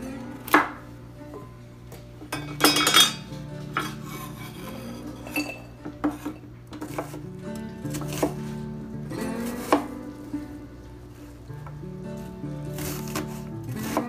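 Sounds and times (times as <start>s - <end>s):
knife clinking against glass bowl: 2.3s - 4.0s, 5.2s - 6.4s
knife ringing clatter: 5.2s - 5.7s
knife chopping on wooden board: 6.1s - 7.2s, 7.9s - 8.4s, 9.5s - 9.9s, 12.8s - 14.0s.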